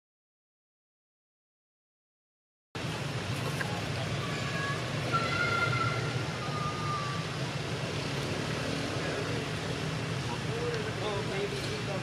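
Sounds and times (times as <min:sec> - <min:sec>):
low outdoor rumble: 0:02.8 - 0:12.0.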